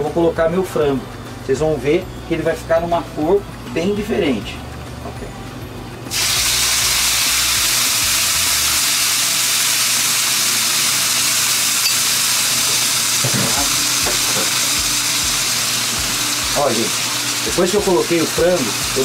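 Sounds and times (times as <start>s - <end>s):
chicken sizzling in a pan: 6.1s - 19.0s.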